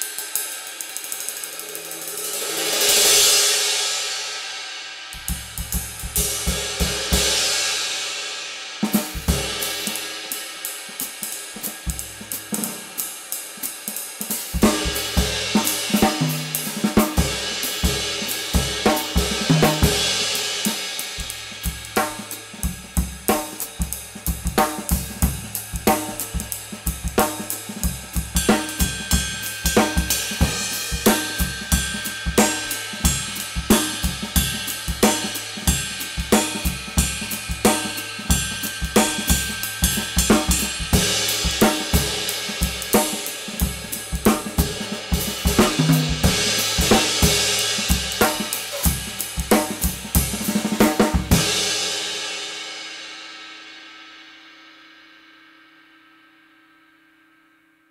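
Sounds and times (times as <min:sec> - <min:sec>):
ride cymbal struck with drumstick: 0:00.0 - 0:55.2.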